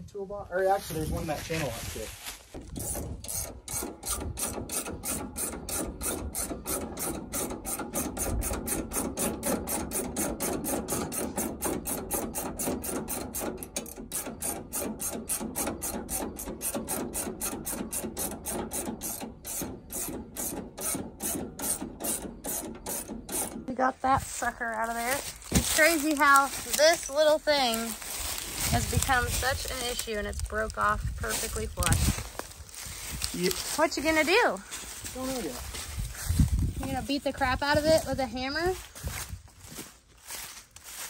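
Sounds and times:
ratchet wrench clicking: 2.8s - 23.6s.

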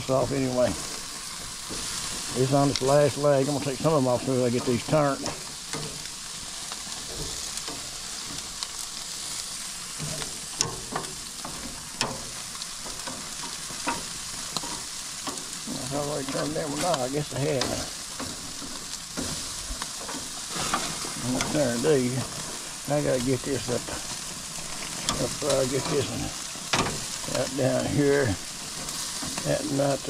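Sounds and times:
meat sizzling on a grill: 0.0s - 30.0s
metal tongs clicking on grates: 16.3s - 21.6s.

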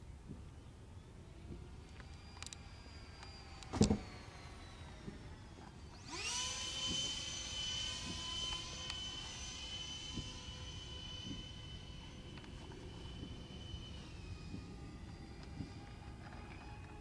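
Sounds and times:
electric ducted fans whining: 0.0s - 17.0s.

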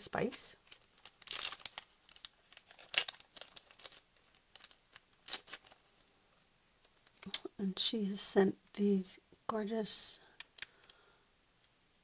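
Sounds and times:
plastic bags crinkling: 0.2s - 6.1s.

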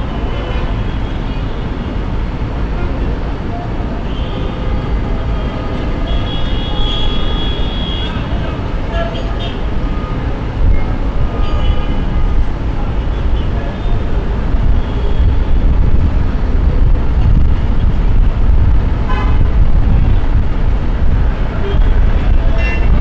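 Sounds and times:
passing vehicles rumbling: 0.0s - 23.0s
car horn toots: 6.0s - 8.2s.

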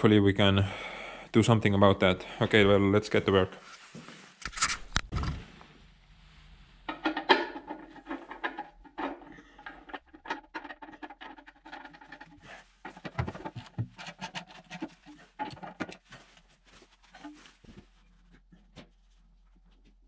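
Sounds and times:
tools clicking and scraping metal: 6.9s - 16.0s.

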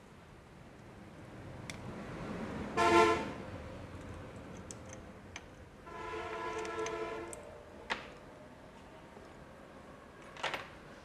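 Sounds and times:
vehicle horn honking: 2.8s - 3.3s, 5.9s - 7.3s.

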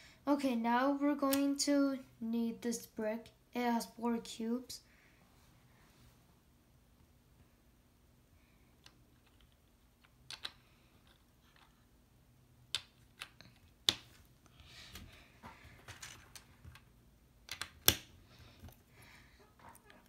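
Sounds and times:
plastic bricks clicking together: 8.8s - 11.8s, 12.7s - 14.0s, 17.5s - 18.1s
pieces rubbing and shuffling: 8.8s - 11.9s, 12.7s - 16.9s.

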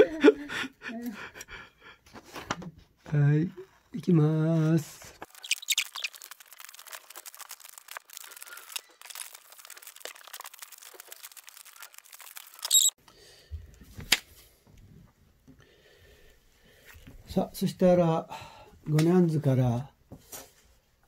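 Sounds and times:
paper handling: 5.2s - 12.9s.

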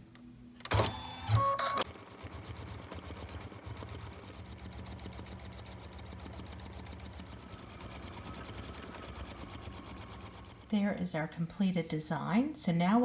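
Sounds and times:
embroidery machine stitching: 0.7s - 10.8s.

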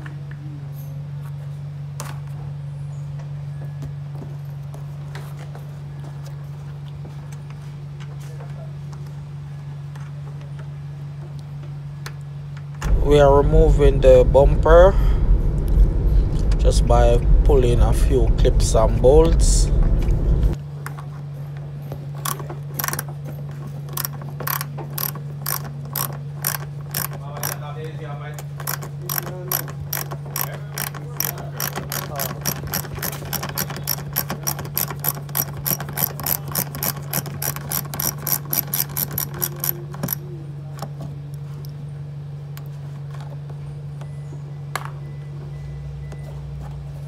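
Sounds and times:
steady low hum: 12.8s - 20.6s
ratchet wrench clicking: 24.0s - 27.6s, 28.6s - 40.2s.

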